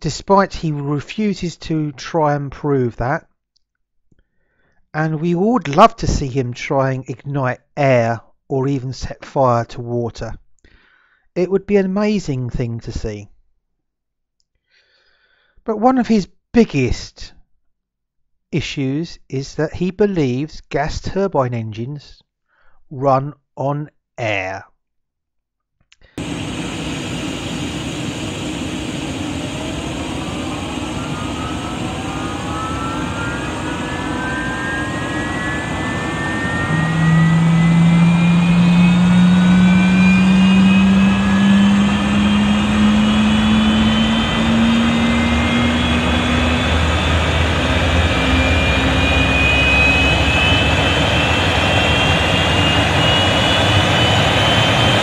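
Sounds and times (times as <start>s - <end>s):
jet engine whine rising: 26.2s - 55.0s
low engine hum: 26.2s - 55.0s.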